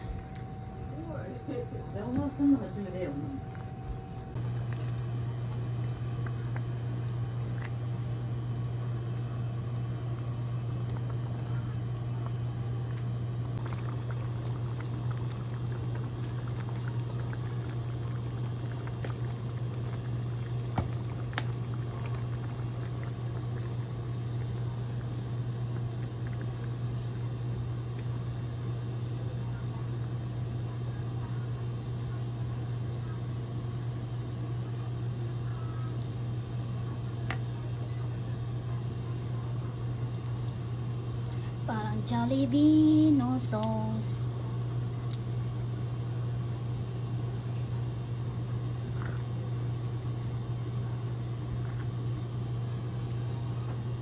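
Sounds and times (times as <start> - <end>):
steady low hum: 0.0 - 54.0
sauce simmering in pan: 13.6 - 28.9.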